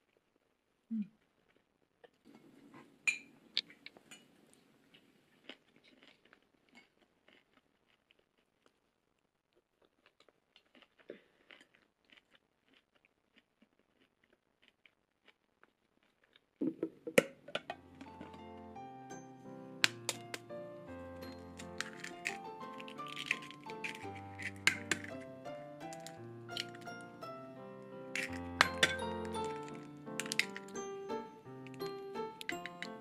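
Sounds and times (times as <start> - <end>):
quiet chewing: 0.0 - 16.9, 21.3 - 30.8, 31.6 - 33.0
chopsticks clicking on ceramic bowl: 21.6 - 25.2, 28.2 - 30.8.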